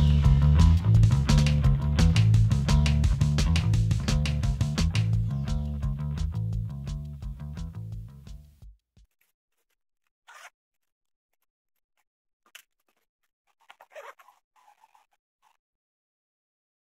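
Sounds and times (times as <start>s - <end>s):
guitar music: 0.0s - 8.3s
zipper being pulled: 10.3s - 10.9s, 12.5s - 15.6s
fabric pencil case rustling: 12.5s - 15.1s.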